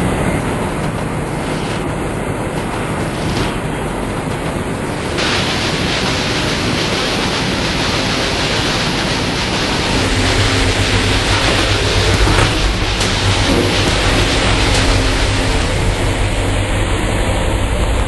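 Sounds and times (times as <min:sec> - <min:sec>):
engine room machinery hiss: 0:00.0 - 0:18.0
deep hum: 0:04.1 - 0:18.0.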